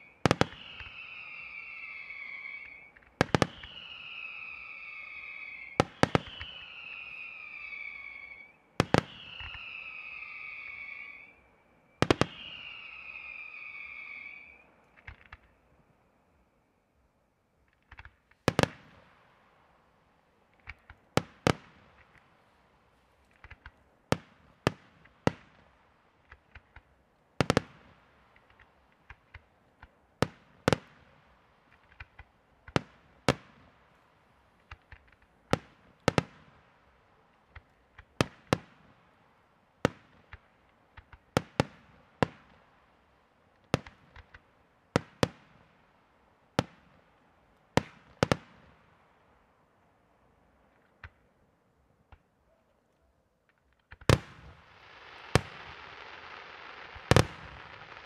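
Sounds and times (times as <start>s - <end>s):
firework shells bursting: 0.0s - 15.6s, 53.4s - 58.0s.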